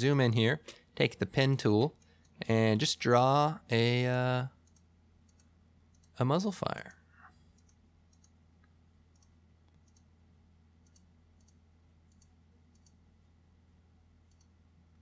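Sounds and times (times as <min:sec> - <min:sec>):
steady low hum: 0:00.0 - 0:15.0
faint computer mouse clicks: 0:07.5 - 0:10.1, 0:10.8 - 0:13.0, 0:14.3 - 0:14.6.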